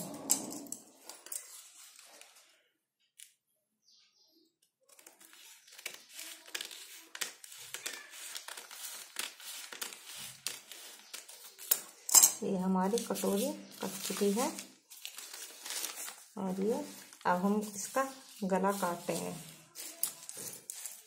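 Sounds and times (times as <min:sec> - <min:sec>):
paper being handled: 0:01.0 - 0:02.6, 0:04.8 - 0:12.0, 0:12.6 - 0:21.0
scissors snipping newspaper: 0:04.8 - 0:11.9, 0:12.8 - 0:21.0.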